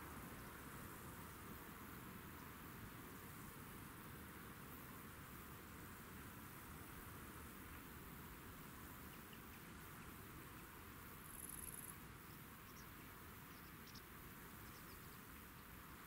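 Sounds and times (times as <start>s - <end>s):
faint countryside hiss: 0.0s - 16.0s
high-pitched insect call: 9.0s - 15.8s.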